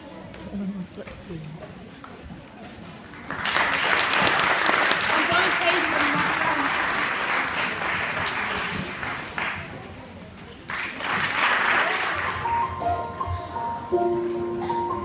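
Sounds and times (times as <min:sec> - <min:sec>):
audience applauding: 0:03.1 - 0:10.0, 0:10.6 - 0:13.2
slow piano tune: 0:12.2 - 0:15.0.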